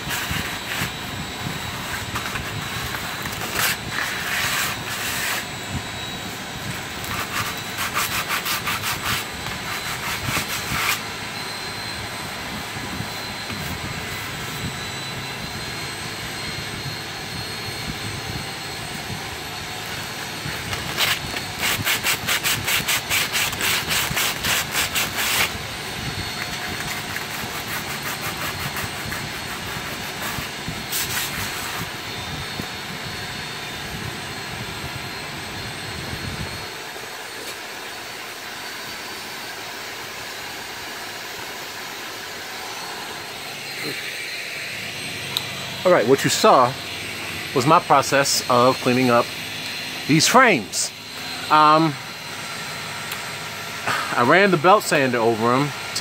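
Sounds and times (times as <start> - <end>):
sandpaper rubbing on wood: 0.0 - 1.1, 1.7 - 5.6, 7.0 - 11.0, 20.5 - 25.6, 26.4 - 31.9
steady hum: 0.0 - 56.0.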